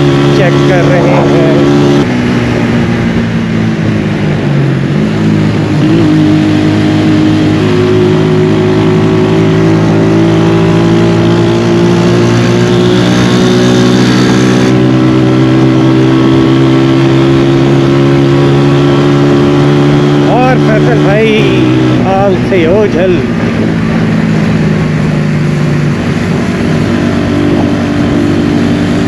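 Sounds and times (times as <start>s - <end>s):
wind noise: 0.0s - 20.3s
motorcycle engine running: 0.0s - 29.0s.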